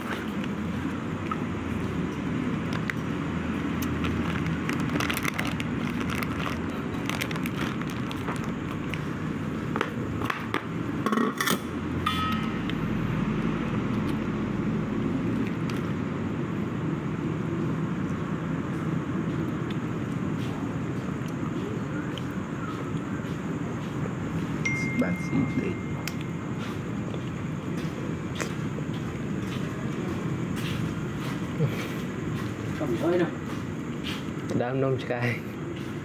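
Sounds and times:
high beep: 24.7 - 26.2.

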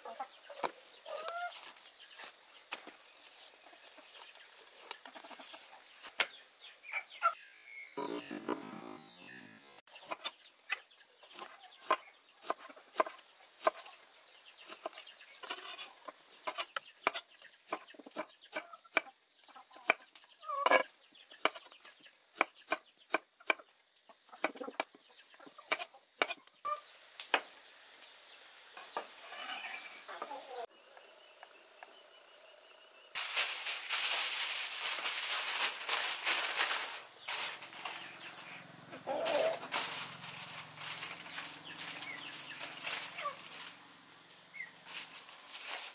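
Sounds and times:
chickens clucking: 0.0 - 3.0, 3.6 - 7.4, 8.0 - 14.0, 14.6 - 26.9, 29.8 - 30.7, 36.7 - 45.9
aluminium foil crinkling: 33.2 - 38.6, 39.2 - 45.9.

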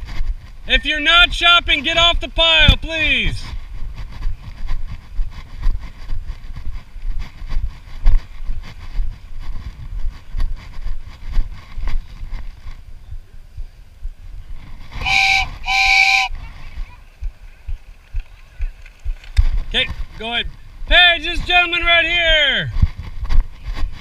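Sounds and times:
horn blasts: 15.0 - 16.4.

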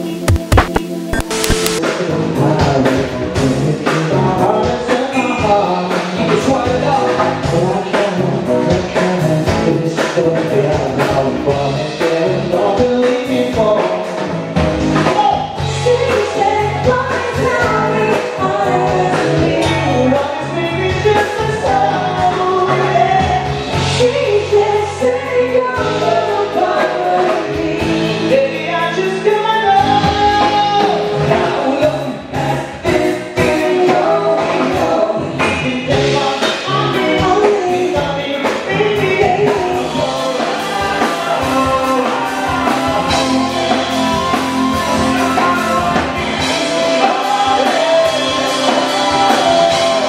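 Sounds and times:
person singing: 0.0 - 14.3, 15.0 - 50.0
bass line: 0.0 - 50.0
drums: 0.0 - 50.0
electric guitars: 0.0 - 50.0.

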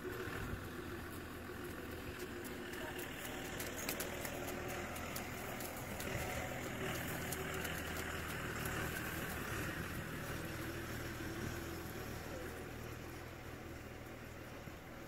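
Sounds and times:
low engine hum: 0.0 - 15.0.

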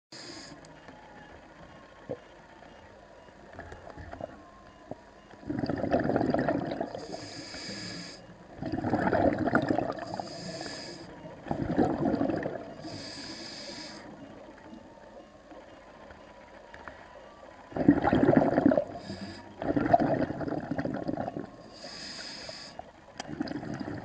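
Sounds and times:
regulator inhale hiss: 0.2 - 0.7, 7.0 - 8.3, 10.0 - 11.2, 12.8 - 14.2, 18.9 - 19.6, 21.6 - 22.9
exhaled bubbles rushing: 5.4 - 7.1, 8.5 - 10.3, 11.4 - 13.0, 17.7 - 21.6, 23.2 - 24.0.

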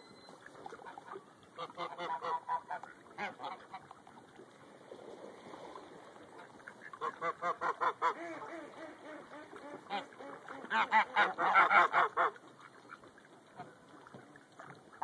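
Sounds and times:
ducks quacking: 0.8 - 3.8, 6.7 - 13.0.

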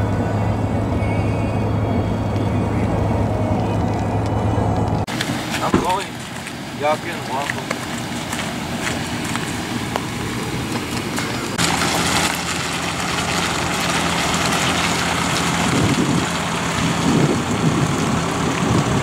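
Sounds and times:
truck engine hum: 0.0 - 19.0.

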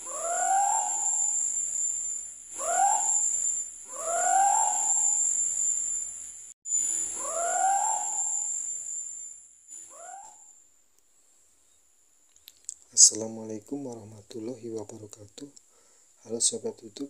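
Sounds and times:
owl hooting: 0.0 - 6.1, 6.7 - 9.1, 9.8 - 10.6
high insect trill: 0.0 - 10.7.

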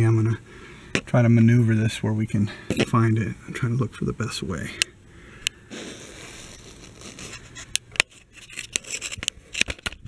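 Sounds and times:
camera handling rustling scrape: 6.4 - 10.0.

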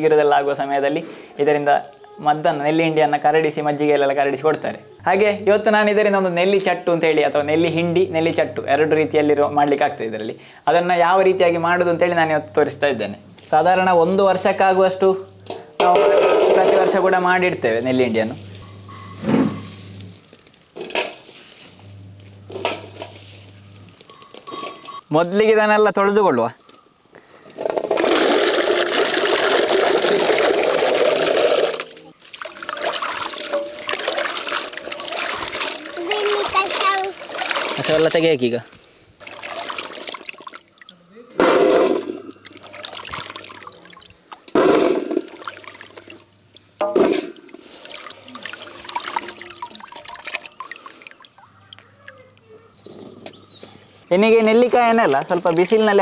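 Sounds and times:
water pouring into metal basin: 27.9 - 38.6, 39.2 - 41.0, 41.6 - 52.6, 54.8 - 56.0
hands sloshing fruit in water: 28.0 - 52.6.

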